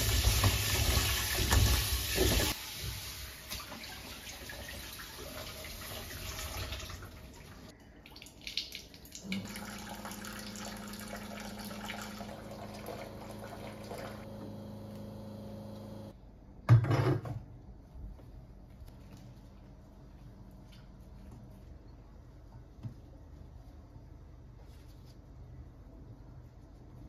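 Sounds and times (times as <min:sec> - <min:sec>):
water running: 0:00.0 - 0:16.1
small appliance humming: 0:09.3 - 0:16.2.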